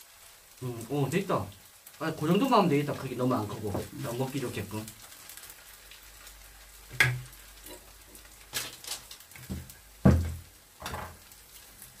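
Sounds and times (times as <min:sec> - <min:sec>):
pancakes frying in a pan: 0:00.0 - 0:12.0
heavy clunk of frying pan: 0:06.9 - 0:07.3, 0:09.4 - 0:11.2.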